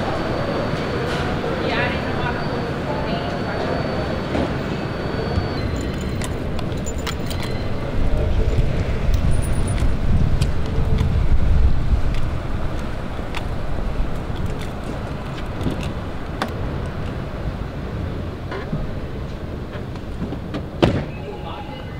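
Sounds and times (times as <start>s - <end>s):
low rumbling city noise: 0.0s - 21.9s.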